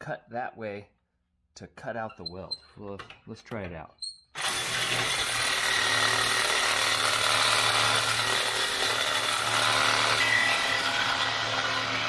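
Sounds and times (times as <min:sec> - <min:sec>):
reciprocating saw cutting metal: 0:04.4 - 0:12.0.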